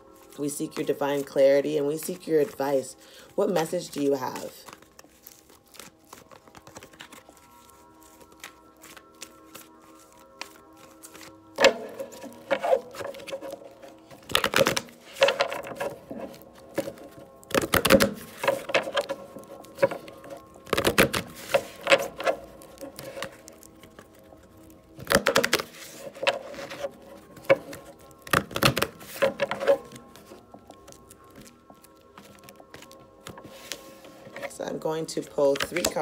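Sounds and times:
cards being shuffled: 0.0s - 36.0s
soft background music: 0.0s - 36.0s.

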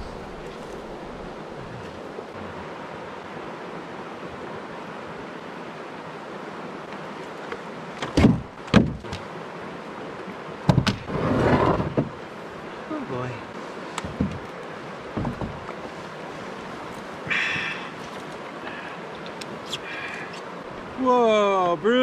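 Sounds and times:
creek flowing over rocks: 0.0s - 22.0s
paddle knocking in canoe: 10.6s - 12.2s, 14.0s - 14.5s, 15.1s - 15.8s.

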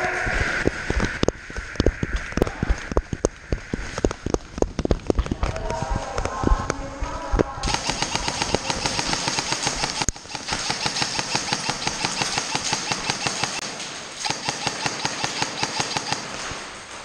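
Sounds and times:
airsoft rifle firing full auto: 7.6s - 16.6s.

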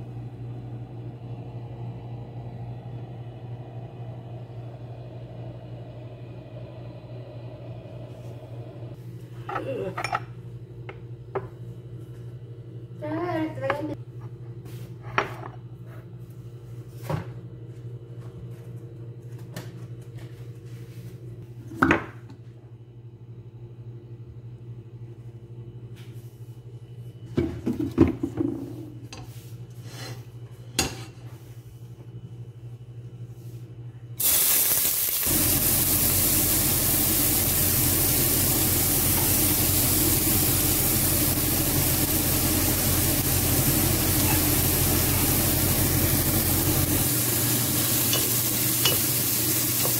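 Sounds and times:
food sizzling in hot oil: 34.2s - 49.9s.

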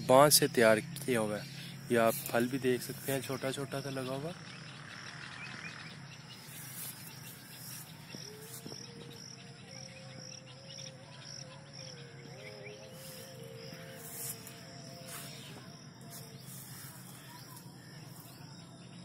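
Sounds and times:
insects chirping: 0.0s - 19.0s
leaves rustling: 6.4s - 8.9s, 13.0s - 18.4s.

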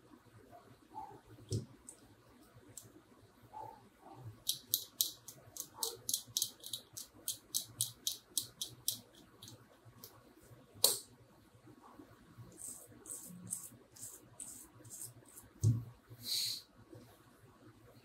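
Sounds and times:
knife tip scraping circuit board: 12.5s - 15.5s.

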